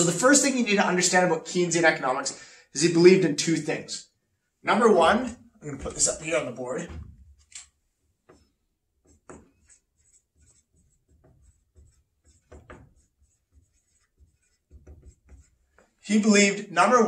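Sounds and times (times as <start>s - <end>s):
marker writing on whiteboard: 4.9s - 16.4s.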